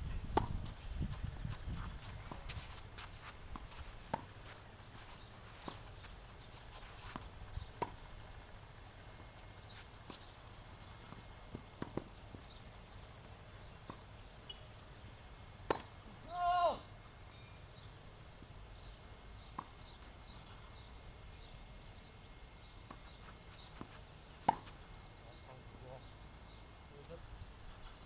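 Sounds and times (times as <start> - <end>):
tennis ball pops: 15.7 - 15.9
person shouting: 16.2 - 16.9.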